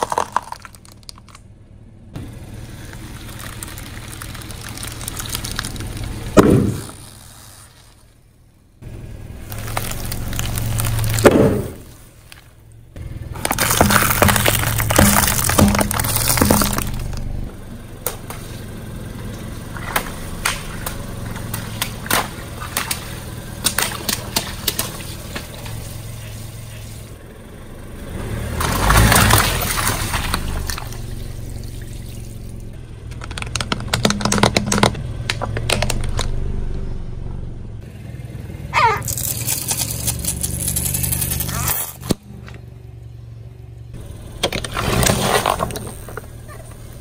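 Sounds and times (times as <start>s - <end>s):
beads cracking and popping: 0.0s - 1.4s, 2.8s - 8.0s, 39.0s - 42.2s
cans crunching under tyre: 0.0s - 1.4s, 2.6s - 8.2s, 9.4s - 12.5s, 13.3s - 17.5s, 28.6s - 36.4s, 39.0s - 42.6s, 44.4s - 47.0s
low engine hum: 0.0s - 47.0s
water balloons bursting: 2.6s - 8.2s, 9.4s - 12.2s, 13.3s - 17.3s, 19.4s - 26.9s.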